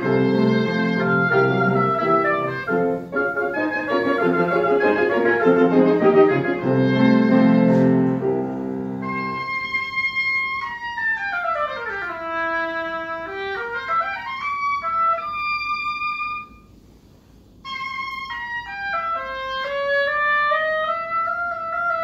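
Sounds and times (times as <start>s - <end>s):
oboe playing fast runs: 0.0s - 16.7s, 17.6s - 22.0s.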